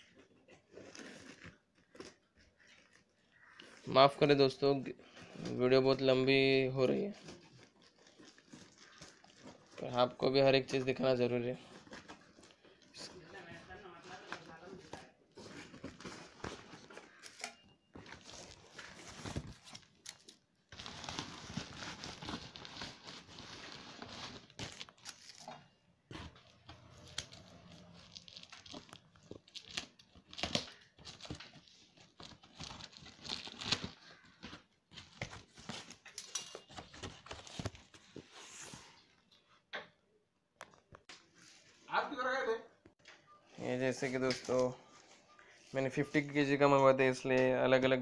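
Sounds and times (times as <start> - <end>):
plastic wrap crinkling: 5.3 - 38.2.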